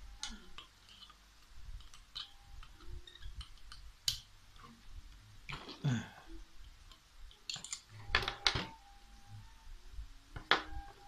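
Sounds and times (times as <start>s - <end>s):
metal tool clicking and tapping: 0.2s - 4.3s.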